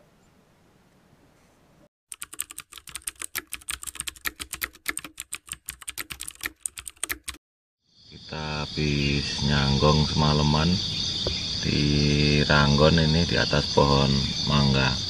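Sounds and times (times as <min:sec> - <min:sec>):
keyboard typing clicks: 0:02.1 - 0:07.4.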